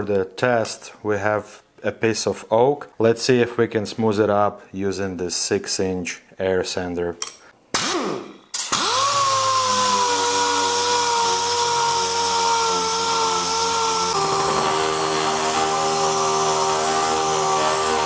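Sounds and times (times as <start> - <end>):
orbital sander whining: 8.8 - 18.0.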